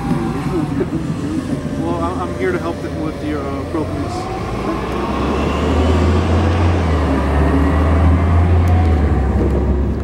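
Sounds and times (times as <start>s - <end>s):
heavy vehicle passing: 0.0s - 10.0s.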